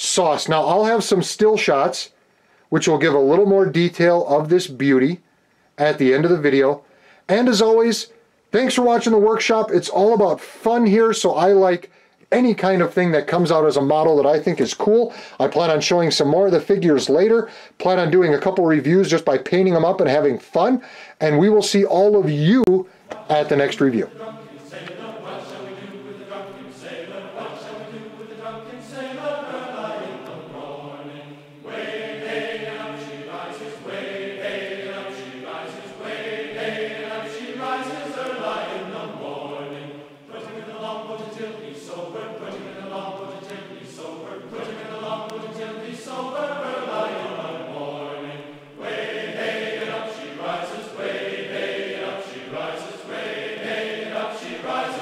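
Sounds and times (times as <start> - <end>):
choir singing a sea shanty: 22.5 - 55.0.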